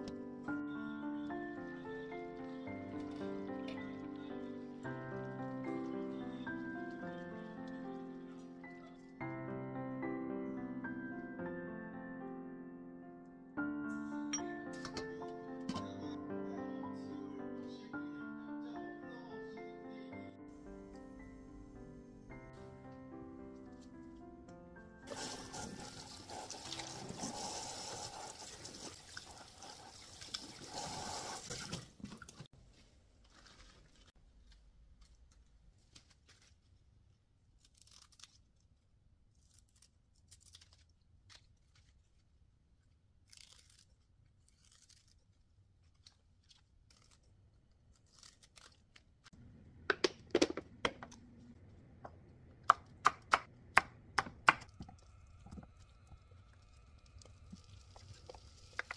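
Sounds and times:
tap water running into sink: 25.1 - 32.4
scissors snipping lettuce: 37.6 - 38.7, 39.3 - 42.1, 43.2 - 49.3.

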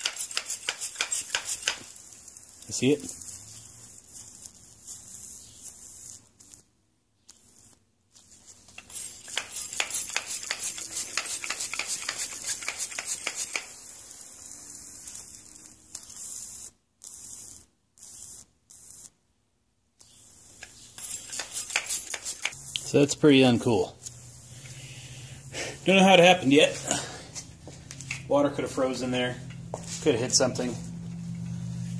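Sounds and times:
air hissing from a leak: 8.8 - 19.1.

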